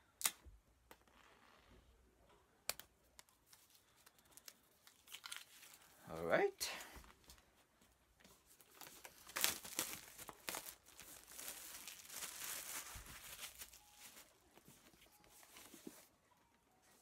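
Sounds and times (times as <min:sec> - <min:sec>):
plastic shrink-wrap tearing and crinkling: 0:04.4 - 0:06.0, 0:08.6 - 0:14.4.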